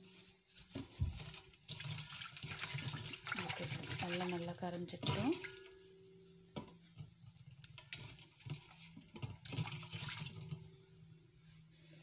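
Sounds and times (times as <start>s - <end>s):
water splashing: 1.2s - 5.7s, 7.7s - 10.6s
fingers stirring water in bowl: 1.3s - 5.7s.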